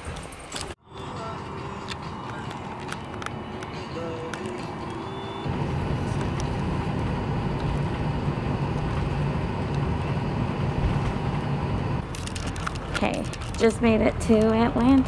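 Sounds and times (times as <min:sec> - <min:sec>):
jet engines rumbling inside cabin: 0:05.2 - 0:12.0.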